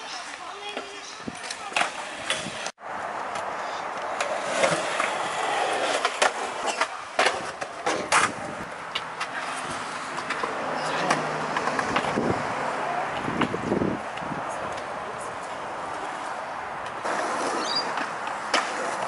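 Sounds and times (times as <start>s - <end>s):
skateboard wheels rolling on concrete: 0.0s - 19.0s
skateboard clacks: 3.3s - 12.3s, 16.8s - 19.0s.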